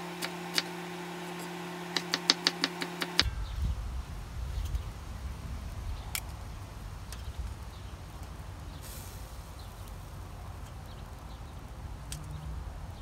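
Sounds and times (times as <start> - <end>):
sausages sizzling: 0.0 - 3.2.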